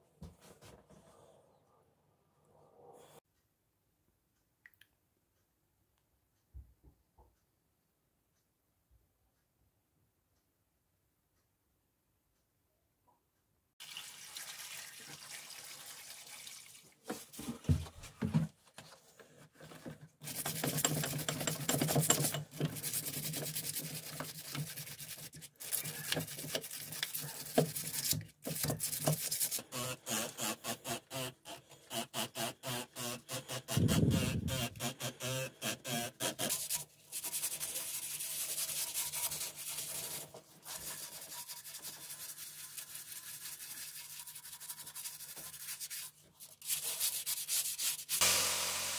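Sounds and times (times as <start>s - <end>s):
liquid pouring into plastic tub: 13.8s - 17.4s
brush scrubbing metal parts in liquid: 20.2s - 29.7s, 36.5s - 48.2s.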